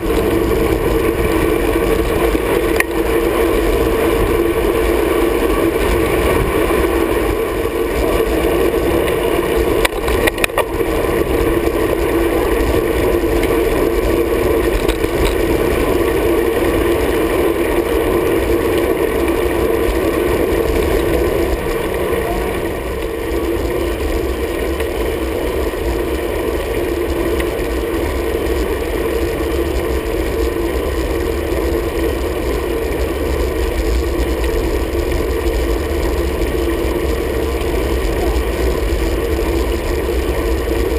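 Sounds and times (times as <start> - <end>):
wind and road rumble: 0.0 - 40.9
rattle of clicks: 9.8 - 10.8, 14.6 - 15.7.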